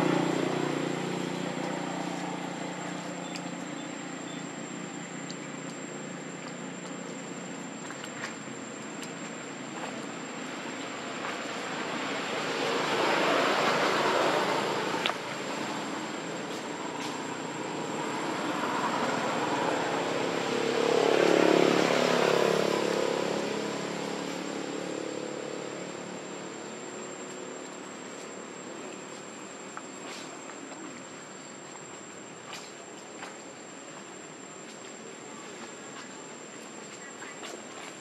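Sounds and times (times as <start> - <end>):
motor vehicle passing by: 0.0 - 4.6, 9.8 - 26.5
small ticks and rustles: 0.2 - 11.7, 26.2 - 38.0.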